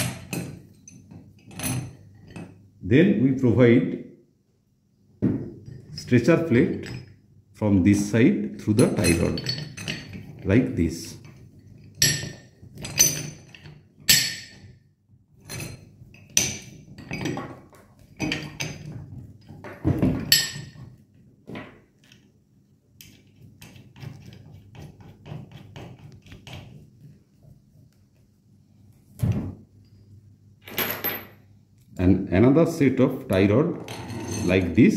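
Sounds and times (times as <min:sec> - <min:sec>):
metal clinks and knocks: 0:05.2 - 0:07.2, 0:08.6 - 0:14.8, 0:15.4 - 0:21.0, 0:29.8 - 0:31.4, 0:33.7 - 0:34.8.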